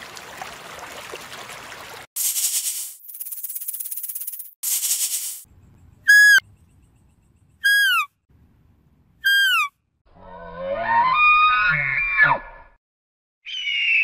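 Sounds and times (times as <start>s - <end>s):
deer high-pitched calls: 7.6s - 8.1s, 9.2s - 9.7s.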